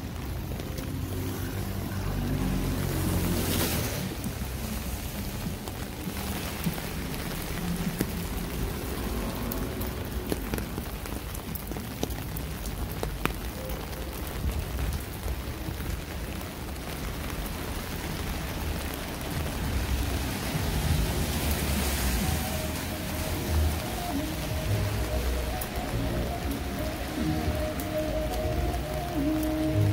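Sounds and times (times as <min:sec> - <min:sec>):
rain on wet pavement: 0:00.0 - 0:29.9.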